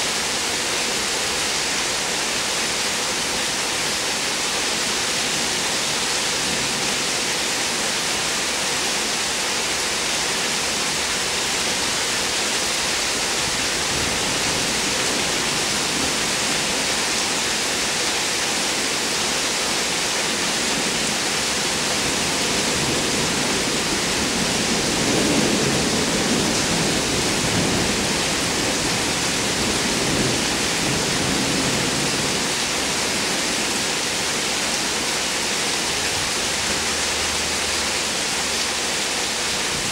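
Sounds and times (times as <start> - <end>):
heavy rain falling: 0.0 - 39.9
thunder rumbling: 22.2 - 33.3.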